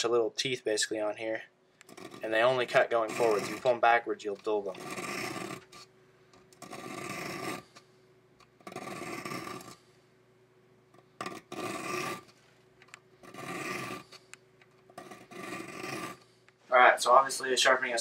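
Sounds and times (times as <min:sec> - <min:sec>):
file rasping on saw teeth: 0:01.9 - 0:03.7, 0:04.7 - 0:05.9, 0:06.6 - 0:07.7, 0:08.7 - 0:09.8, 0:11.2 - 0:12.3, 0:13.2 - 0:14.1, 0:15.0 - 0:16.2.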